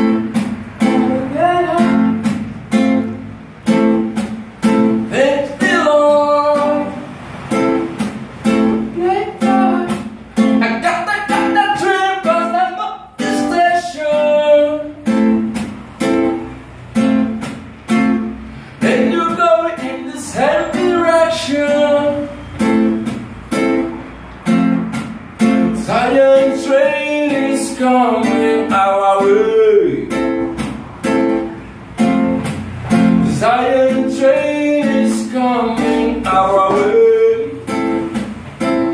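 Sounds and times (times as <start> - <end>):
classical guitar strumming: 0.0 - 38.9
man singing: 0.8 - 2.2, 5.0 - 7.1, 8.8 - 15.1, 18.8 - 22.5, 25.8 - 30.2, 33.2 - 38.0.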